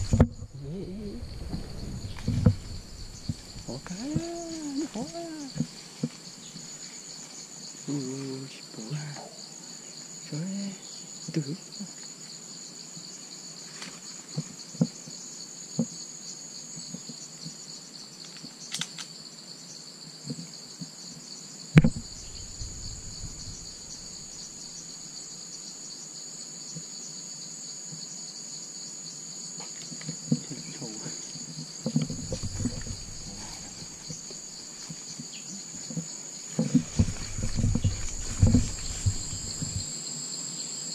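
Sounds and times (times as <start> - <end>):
high-pitched insect chorus: 0.0 - 40.9
footsteps through undergrowth: 36.6 - 39.8.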